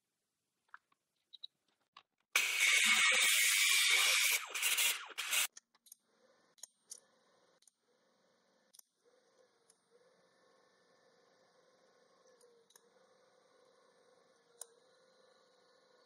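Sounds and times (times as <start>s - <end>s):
welding arc hissing: 2.4s - 5.5s.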